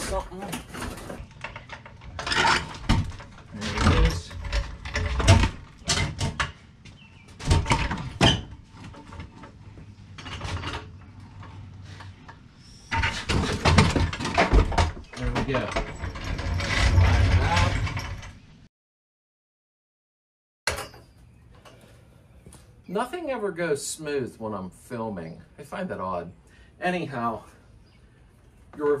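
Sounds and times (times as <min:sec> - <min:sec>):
metal knocks and clanks: 0:00.0 - 0:06.6, 0:07.3 - 0:09.6, 0:12.9 - 0:18.4.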